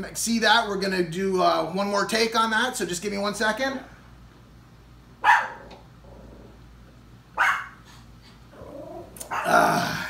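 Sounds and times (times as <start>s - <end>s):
rough throat sounds: 8.6s - 10.0s.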